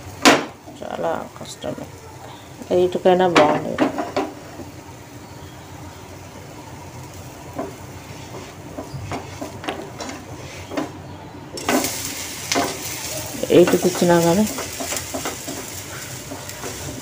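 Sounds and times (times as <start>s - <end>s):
batter sizzling on hot griddle: 0.0s - 1.7s, 2.3s - 17.0s.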